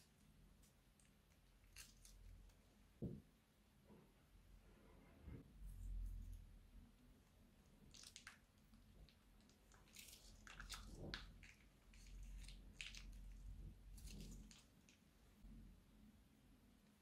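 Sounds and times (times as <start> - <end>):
squishy slime crackles and pops: 7.8 - 15.0.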